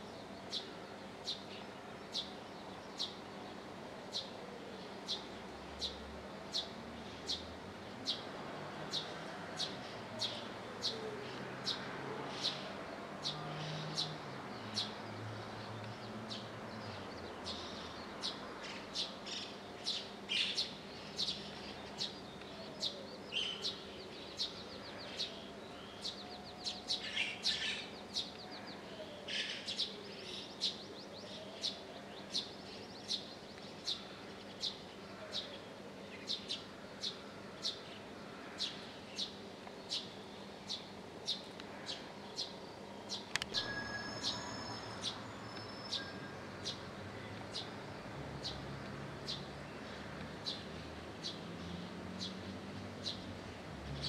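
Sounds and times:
sparrow chirping: 38.6s - 49.6s.

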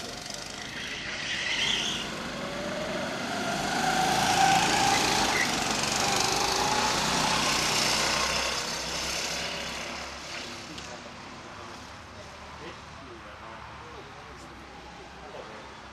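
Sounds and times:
go-kart engine running: 0.0s - 11.0s.

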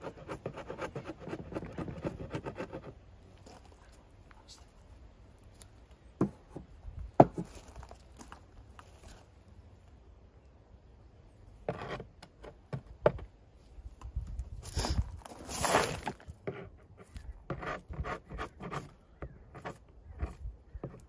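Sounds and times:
hand tool scraping wood: 0.0s - 3.0s, 11.6s - 13.1s, 14.7s - 21.0s.

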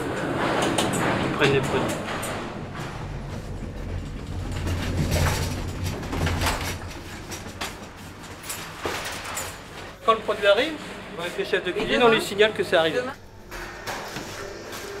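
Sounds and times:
trolley wheels rumbling on floor: 0.0s - 10.0s
metal frame rattling: 0.3s - 10.0s.

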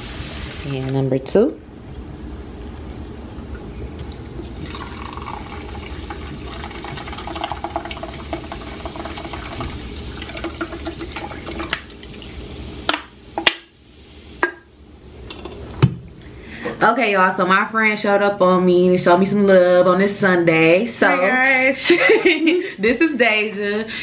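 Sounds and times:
soda pouring into pot: 3.9s - 14.4s.

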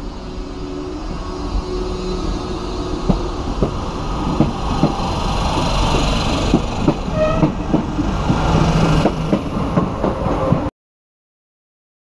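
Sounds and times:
train rumble: 0.0s - 10.7s
train wheels clicking over rail joints: 3.0s - 10.7s.

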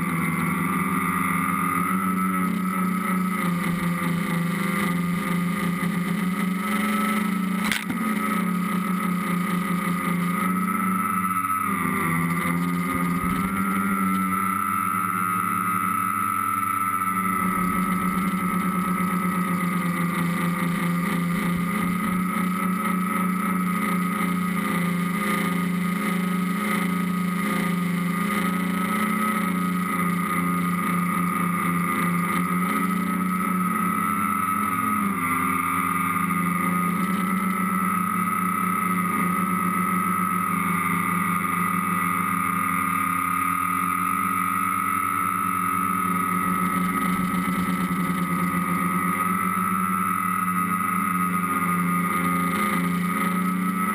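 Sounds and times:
drone motors whining: 0.0s - 53.9s.

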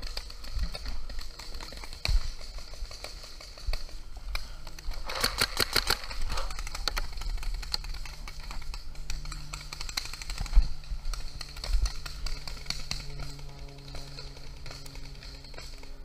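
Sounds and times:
paintball gun shots: 4.6s - 13.3s.

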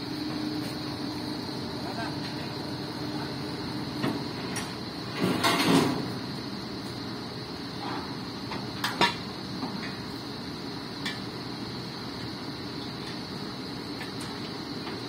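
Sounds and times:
metal ramp knocks and scrapes: 5.2s - 6.1s.

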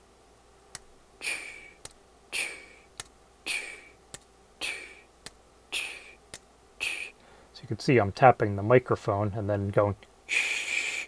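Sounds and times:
hissy voice sound: 1.2s - 4.0s, 4.6s - 5.1s, 5.7s - 7.2s, 10.3s - 11.0s.

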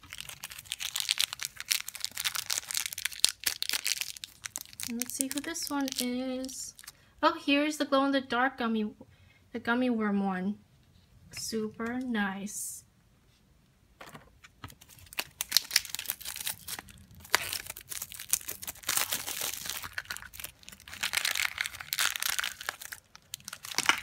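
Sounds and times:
foil bag crumpling: 0.0s - 6.9s, 14.8s - 24.0s
plastic wrapping crinkling and tearing: 0.0s - 7.0s, 14.7s - 24.0s.

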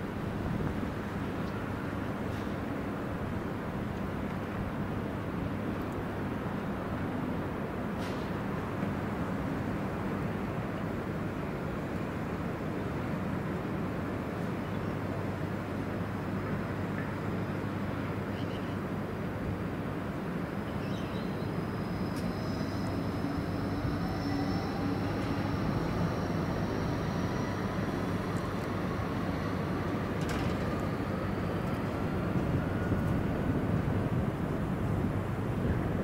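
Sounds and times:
faint rising whine: 20.4s - 36.0s
excavator engine rumbling: 21.6s - 35.3s.

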